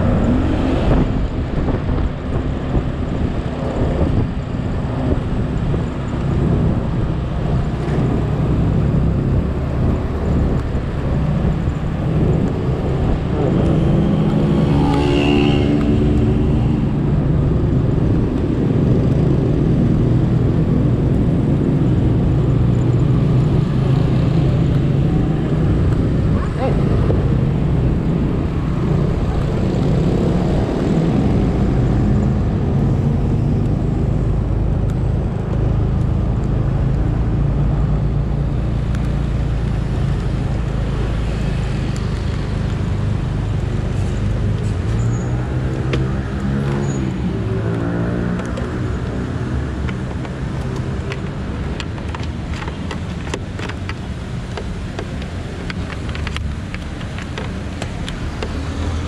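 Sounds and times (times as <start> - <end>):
scooter engine drone: 0.0 - 44.9
vehicle passing: 12.5 - 17.4.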